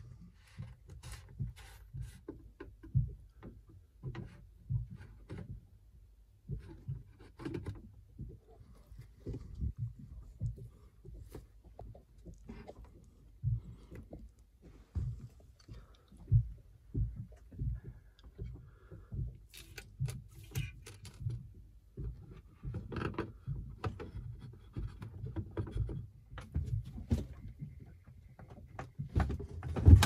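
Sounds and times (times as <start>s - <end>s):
sharp plastic clicks and knocks: 6.4s - 27.6s
soft thumps of hose handling: 6.4s - 27.7s.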